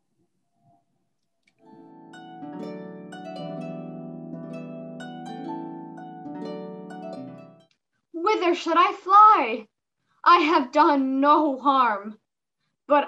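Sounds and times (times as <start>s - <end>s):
harp music: 1.6s - 7.7s.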